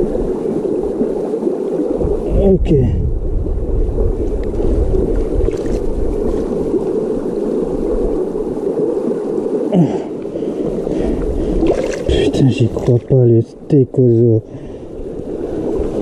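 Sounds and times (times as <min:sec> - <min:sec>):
river water rushing: 0:04.5 - 0:13.0.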